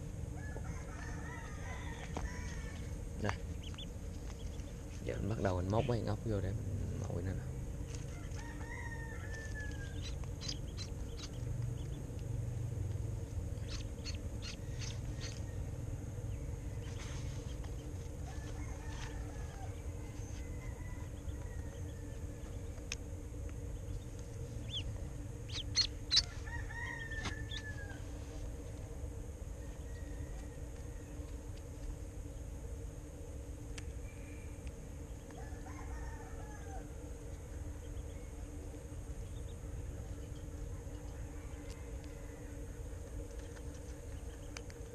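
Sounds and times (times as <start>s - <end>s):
steady low hum: 0.0s - 44.9s
duckling peeping: 2.5s - 6.1s, 9.4s - 12.2s, 13.5s - 19.5s, 23.7s - 28.0s.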